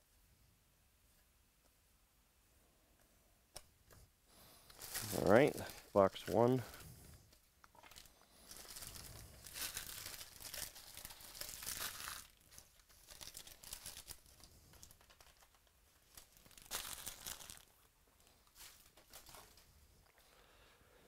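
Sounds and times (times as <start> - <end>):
plastic foil wrappers crinkling: 4.7 - 19.7.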